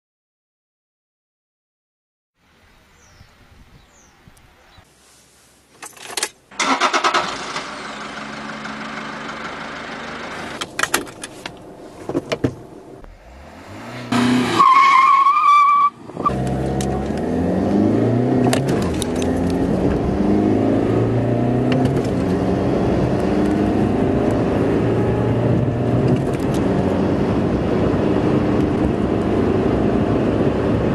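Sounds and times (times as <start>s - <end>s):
car engine idling and revving: 6.4s - 30.9s
diesel engine starting: 6.5s - 10.9s
car accelerating through gears: 13.0s - 30.9s.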